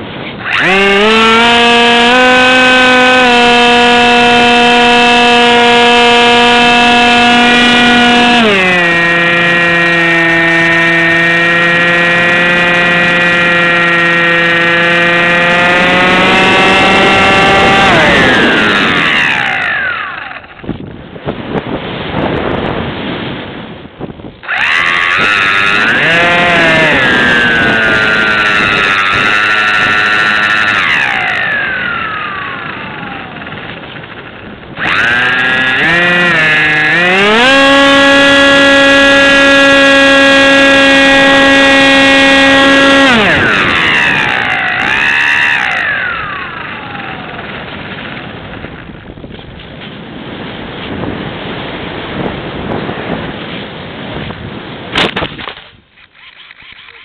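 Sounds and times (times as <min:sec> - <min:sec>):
model plane motor and propeller: 0:00.0 - 0:23.0, 0:24.0 - 0:57.0.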